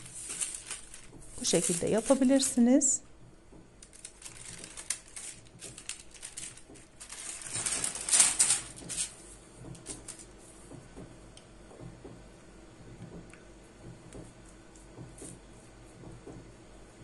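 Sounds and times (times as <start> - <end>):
baking paper rustling: 0.0 - 3.0, 3.8 - 10.5.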